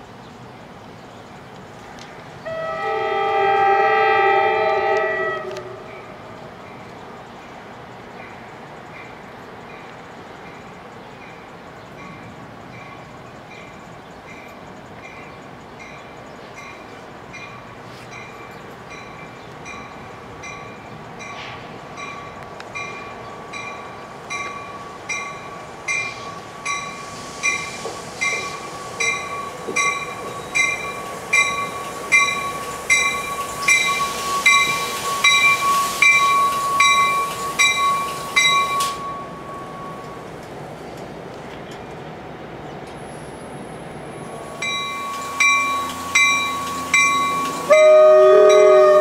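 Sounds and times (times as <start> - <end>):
rush of train cars rolling by: 0.0 - 49.0
train warning bell ringing: 8.2 - 40.4, 44.2 - 49.0
high squeal: 26.0 - 40.3, 44.2 - 49.0.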